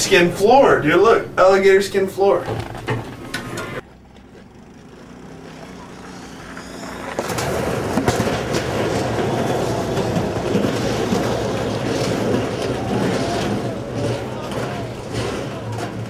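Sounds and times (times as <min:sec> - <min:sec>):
towing motor rumble: 0:00.0 - 0:16.0
trash cans clattering: 0:07.2 - 0:16.0.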